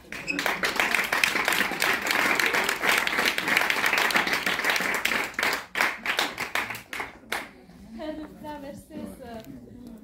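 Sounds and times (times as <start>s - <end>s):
audience clapping: 0.0s - 7.6s.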